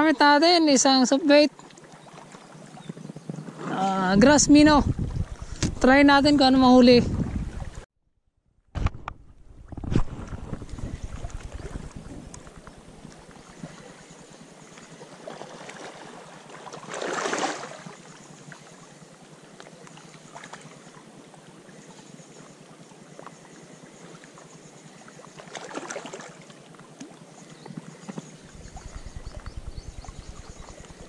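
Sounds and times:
sea water lapping against rocks: 0:09.0 - 0:14.2, 0:14.8 - 0:18.0, 0:25.4 - 0:27.1.

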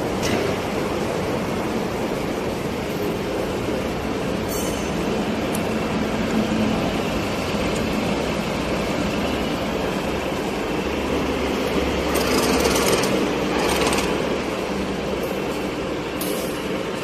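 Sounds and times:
milling machine humming: 0:05.5 - 0:15.2.

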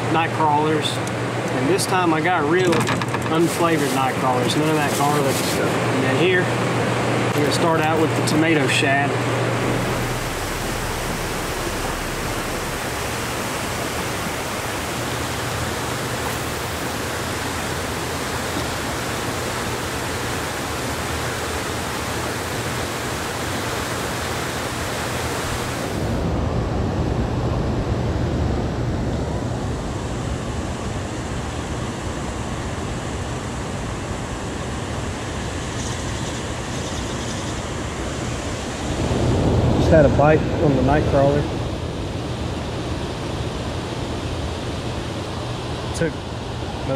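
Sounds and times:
low hum: 0:01.0 - 0:17.9
rushing water: 0:01.2 - 0:26.3.

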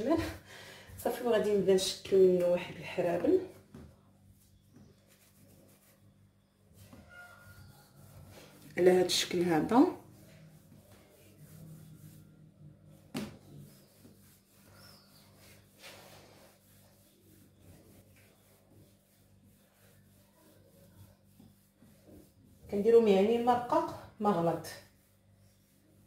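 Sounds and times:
hands rubbing sticky paste: 0:03.2 - 0:06.1, 0:13.2 - 0:23.1.

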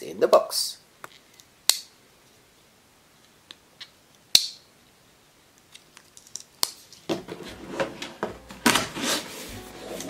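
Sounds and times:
cardboard box rustling and scraping: 0:07.4 - 0:10.0.

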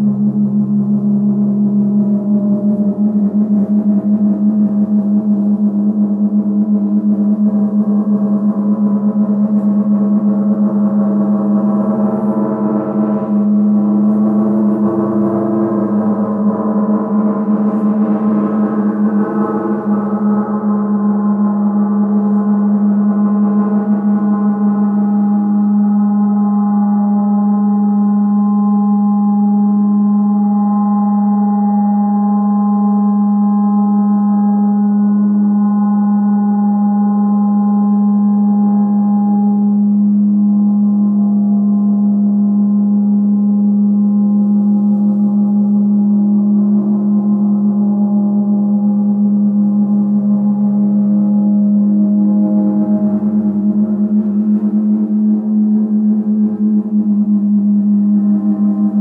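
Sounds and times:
reversed gong shimmering overtones: 0:07.1 - 0:59.0.

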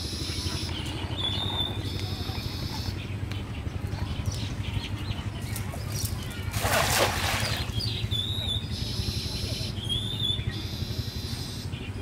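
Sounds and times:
steady low hum: 0:00.0 - 0:12.0
net splashing into water: 0:06.5 - 0:07.8.

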